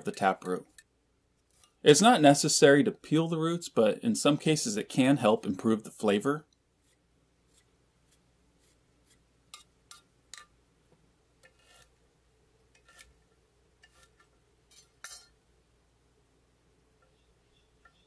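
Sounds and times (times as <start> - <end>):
vegetable peeler scraping: 1.5 - 1.8, 6.8 - 10.4, 11.4 - 11.9, 12.7 - 13.2, 13.8 - 15.2.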